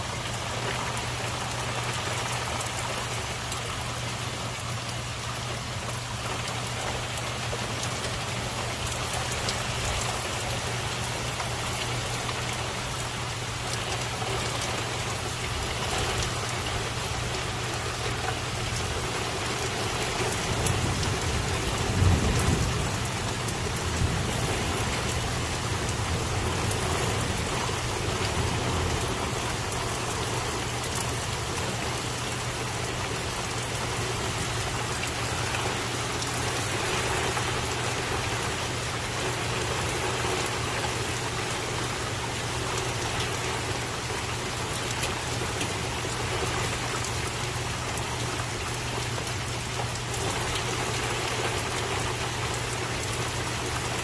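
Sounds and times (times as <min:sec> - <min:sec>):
steady rain falling: 0:00.0 - 0:54.0
low rumble of thunder: 0:20.3 - 0:30.0.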